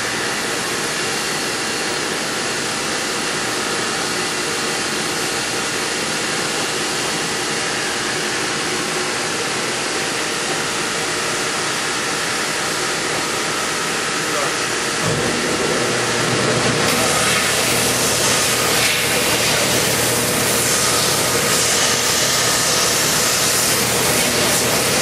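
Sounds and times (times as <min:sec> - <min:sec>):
machine hissing: 0:16.8 - 0:25.0.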